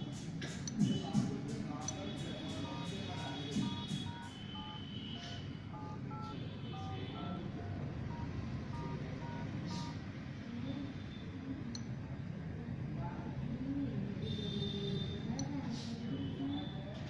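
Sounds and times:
keypad tone beeps: 1.8 - 10.0.

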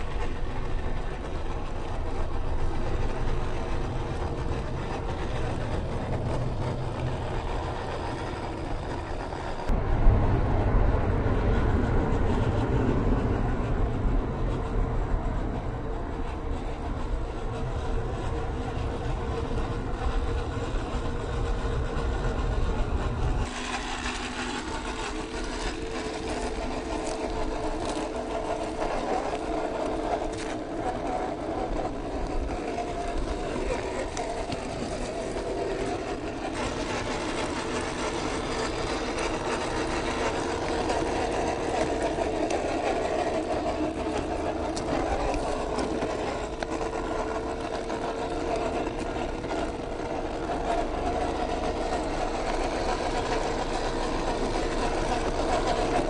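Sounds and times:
heavy low rumble: 0.0 - 56.0
small electric motor whining: 17.5 - 56.0
tyres crunching over gravel: 23.4 - 56.0.

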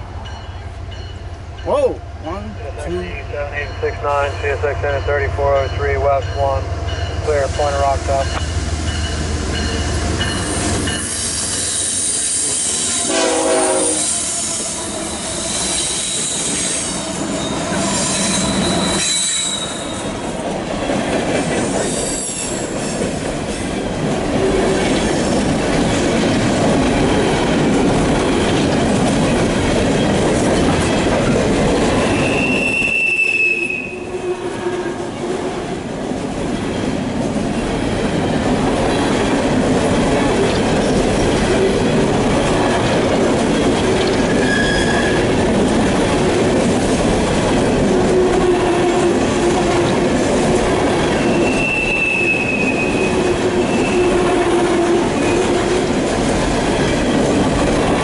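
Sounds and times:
train wheels rumbling and clattering: 0.0 - 33.0, 34.0 - 58.0
high wheel squeals: 13.8 - 20.1, 32.0 - 34.4, 44.3 - 45.2, 51.2 - 54.2.

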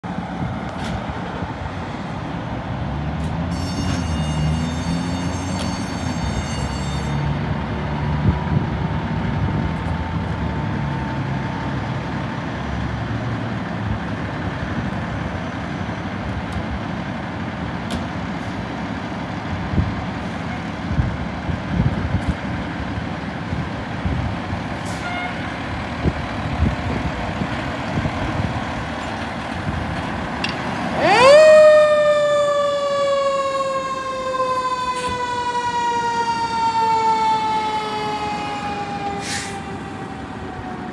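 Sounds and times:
fire engines rumbling: 0.0 - 40.9
fire engine siren: 3.3 - 12.6, 18.4 - 40.9.

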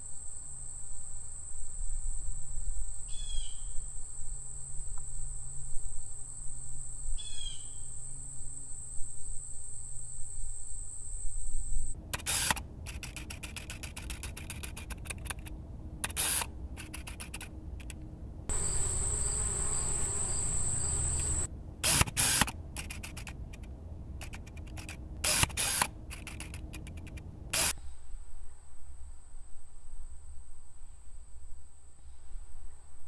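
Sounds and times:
high insect drone: 0.0 - 14.4, 18.5 - 21.5.

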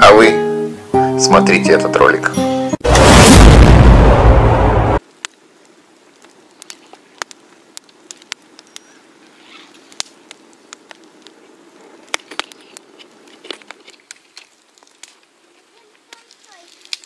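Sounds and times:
campfire crackling and popping: 4.9 - 17.0.

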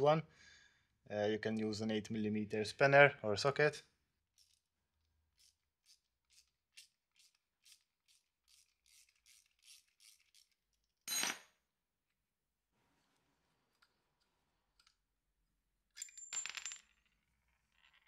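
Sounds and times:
socket wrench ratcheting: 5.4 - 10.6.

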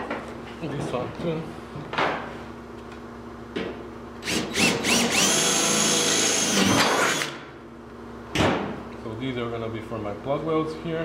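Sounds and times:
cordless drill whining: 4.2 - 7.4
drill motor blips: 4.2 - 7.4.

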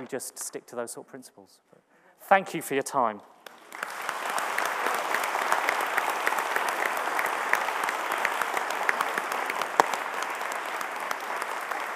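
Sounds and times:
audience applauding: 3.4 - 11.9.

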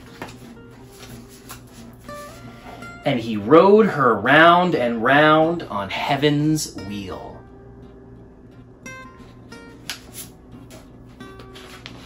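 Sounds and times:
book page turning: 0.0 - 2.4, 9.8 - 12.0
plucked guitar music: 0.0 - 12.0.

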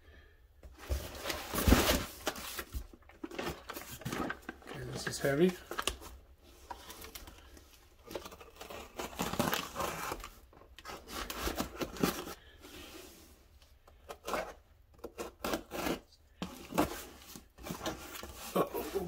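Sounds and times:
cardboard scraping and rustling: 0.7 - 13.3, 15.3 - 19.0
packing tape tearing: 8.0 - 12.4.

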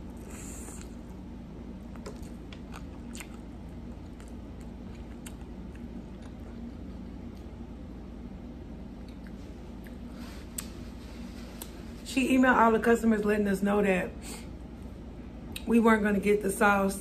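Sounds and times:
close-up chewing: 1.8 - 7.5.

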